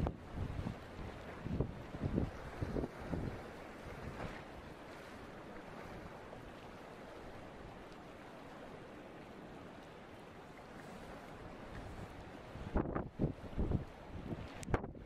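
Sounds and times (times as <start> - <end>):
wind noise on microphone: 0.0 - 4.4, 11.7 - 15.0
choppy sea: 0.0 - 15.0.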